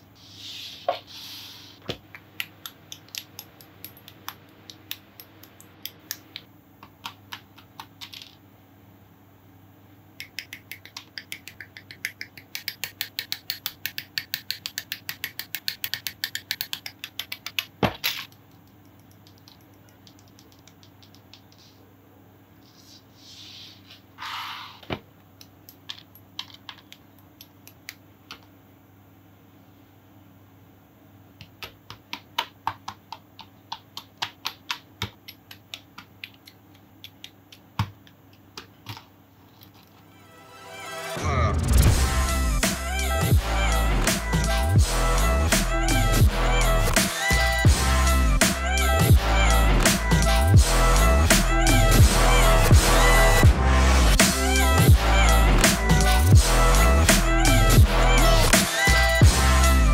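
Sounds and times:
paintbrush sweeping plastic scraps: 0.2s - 1.8s.

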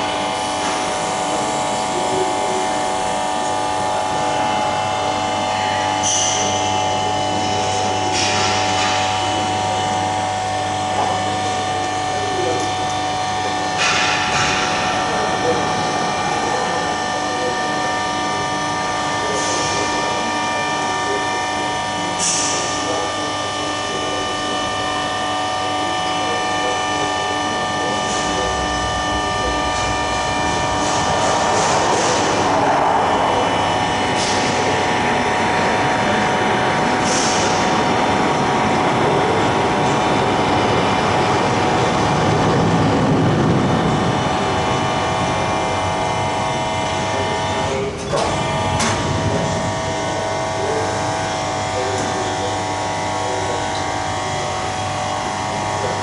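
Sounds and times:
machinery humming: 0.0s - 56.0s
rush of noise: 27.6s - 36.8s, 37.4s - 46.2s.

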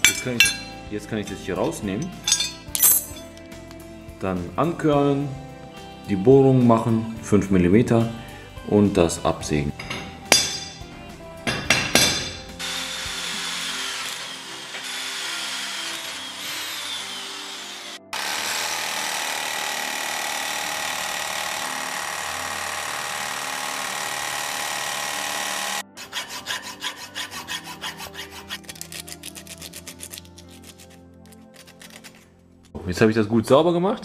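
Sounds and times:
background music: 0.0s - 34.0s
electric drill boring into steel: 12.2s - 25.9s
electric jigsaw cutting steel: 12.2s - 28.7s
hand file rasping steel: 25.1s - 32.3s.

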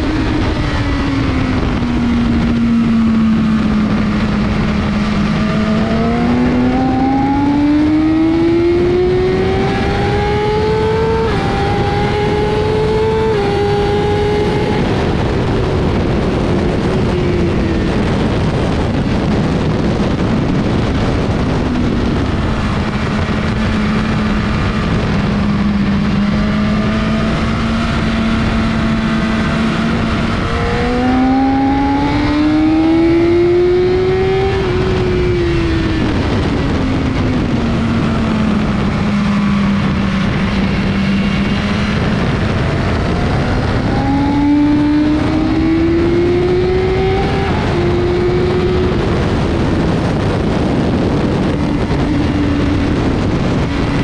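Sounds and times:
motorcycle engine revving: 0.0s - 54.0s
wind rush: 0.0s - 54.0s.

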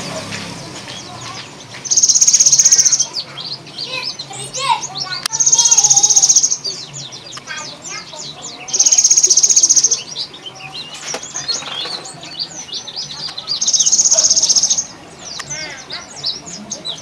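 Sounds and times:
bird rapid high rattle call: 1.2s - 3.2s, 5.3s - 6.8s, 8.7s - 10.1s, 13.1s - 14.9s
short high bird chirps: 1.8s - 4.4s, 5.3s - 6.8s, 8.7s - 10.4s.

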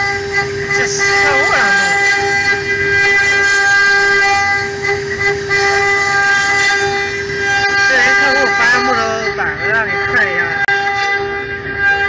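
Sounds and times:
router bit cutting wood: 0.0s - 11.2s
spindle whine: 0.0s - 12.0s.

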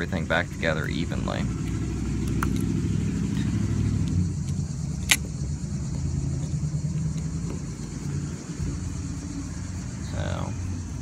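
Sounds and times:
engine running steadily: 0.0s - 11.0s
sharp click: 4.1s - 5.3s.

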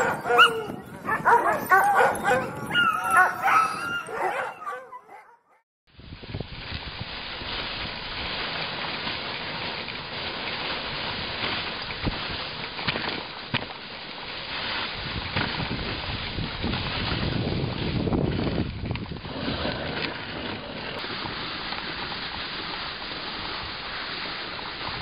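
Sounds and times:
dogs barking and yelping: 0.0s - 5.6s.

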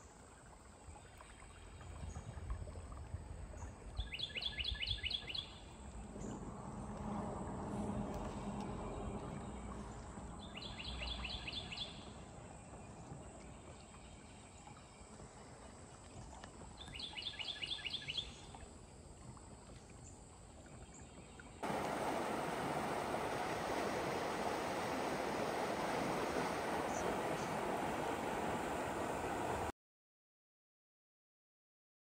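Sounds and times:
songbird singing: 3.5s - 7.1s, 7.9s - 15.2s, 16.8s - 18.6s, 20.0s - 29.7s
water pouring into river: 21.6s - 29.7s.

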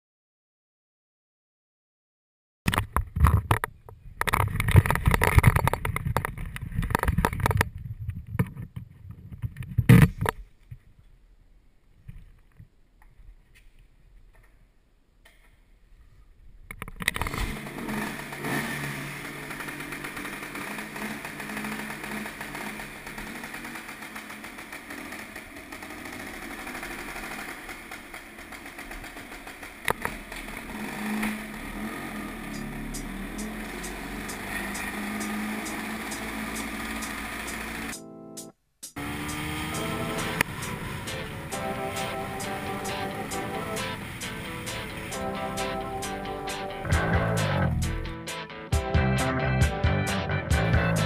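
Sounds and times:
scooter engine running: 17.2s - 38.0s, 38.9s - 48.2s.

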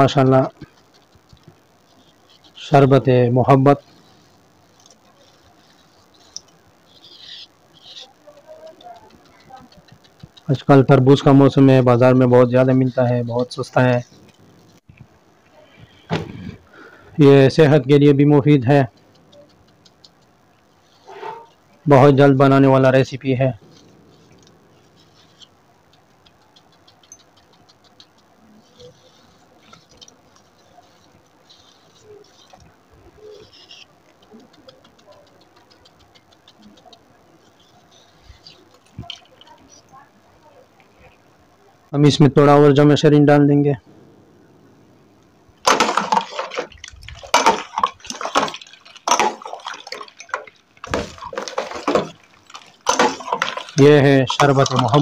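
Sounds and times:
liquid sloshing: 45.6s - 55.0s
ice clinking against metal bowl: 45.7s - 55.0s
metal spoon scraping watermelon: 45.7s - 55.0s.

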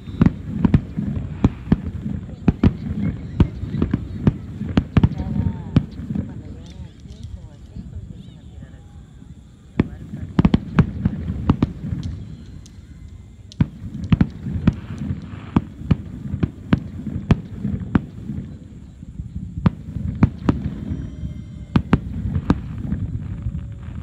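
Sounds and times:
fireworks bangs: 0.0s - 24.0s
low rumble: 13.2s - 24.0s.

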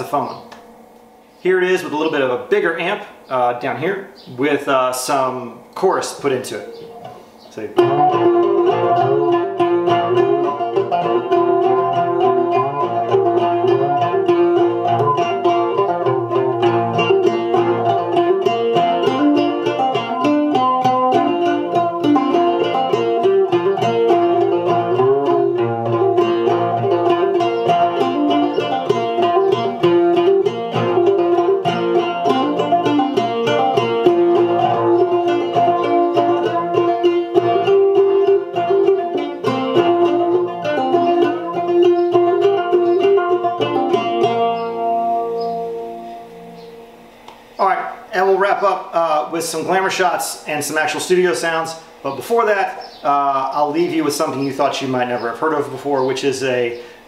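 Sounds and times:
amplified banjo picking melody: 5.0s - 48.7s.

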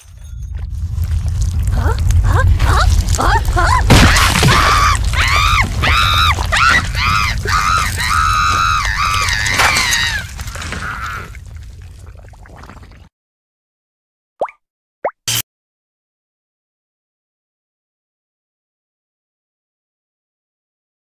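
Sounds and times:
cartoon character screaming: 3.9s - 11.3s.

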